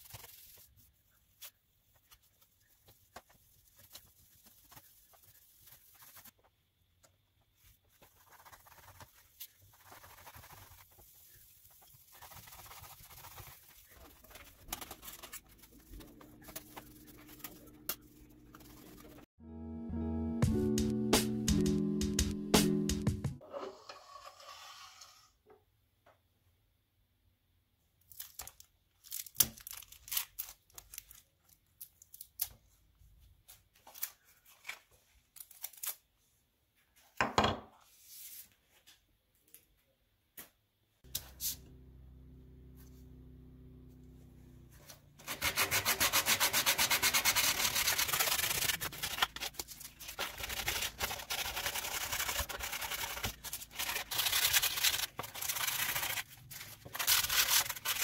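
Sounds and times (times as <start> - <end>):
sandpaper rubbing on wood: 45.2 - 49.6.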